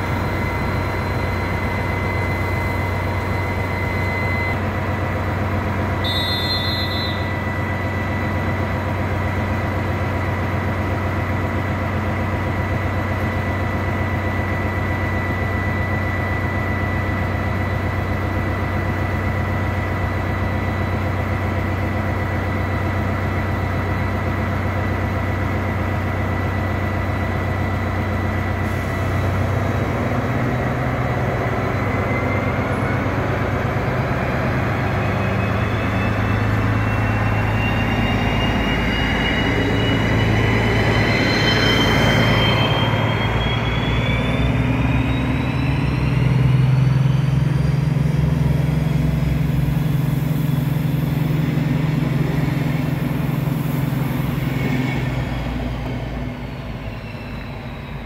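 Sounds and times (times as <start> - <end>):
diesel locomotive engine: 0.0 - 58.0
high whine rising in pitch: 33.9 - 58.0.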